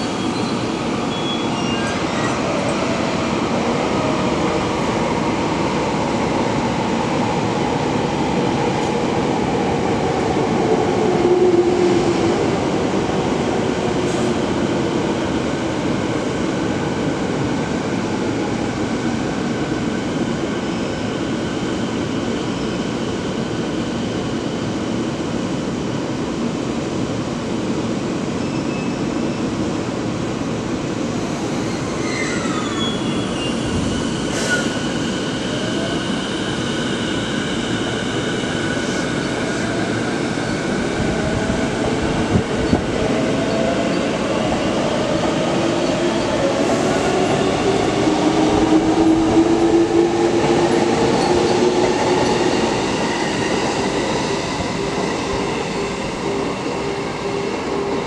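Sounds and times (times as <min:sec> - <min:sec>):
train wheel squeal: 0:00.0 - 0:02.5, 0:28.4 - 0:29.5, 0:31.4 - 0:39.4.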